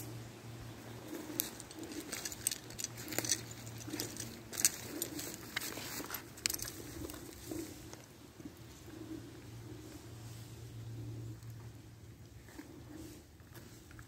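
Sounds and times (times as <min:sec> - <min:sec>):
faint low hum: 0:00.0 - 0:14.0
footsteps crunching dry leaves: 0:01.0 - 0:07.6.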